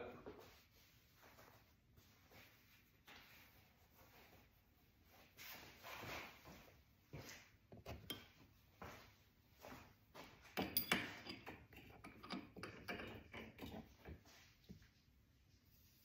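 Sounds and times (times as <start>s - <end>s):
small steel hardware clinking: 10.6s - 13.7s.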